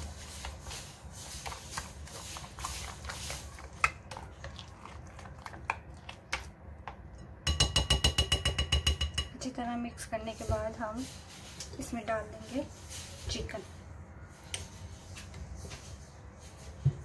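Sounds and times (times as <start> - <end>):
spoon stirring thick paste: 0.0 - 13.6.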